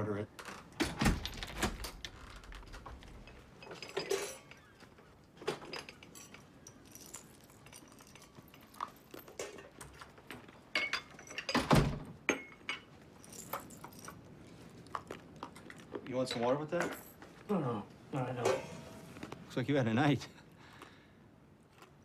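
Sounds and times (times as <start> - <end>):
crockery and cutlery clinking: 3.2 - 14.3, 16.2 - 19.5.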